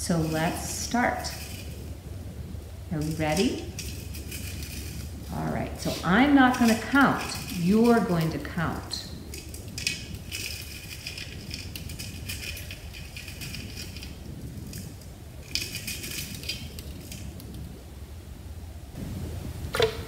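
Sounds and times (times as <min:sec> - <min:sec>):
sand rattling in a metal sieve: 0:00.0 - 0:02.0, 0:02.8 - 0:17.7.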